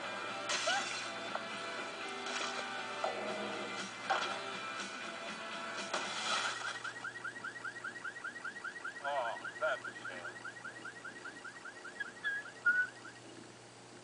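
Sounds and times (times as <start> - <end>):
car alarm rising chirps: 6.3 - 13.5.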